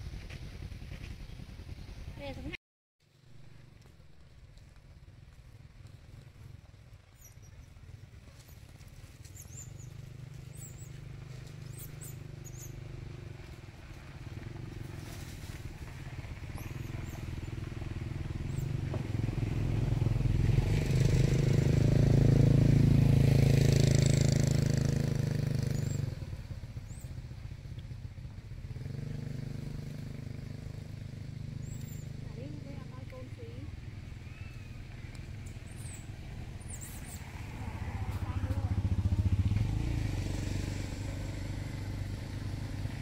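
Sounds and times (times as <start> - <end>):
motorbike engine running: 0.0 - 43.0.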